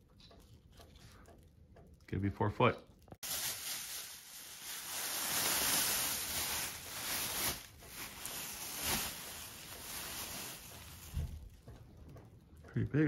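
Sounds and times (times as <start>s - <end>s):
plastic bag rustling: 3.2s - 11.6s.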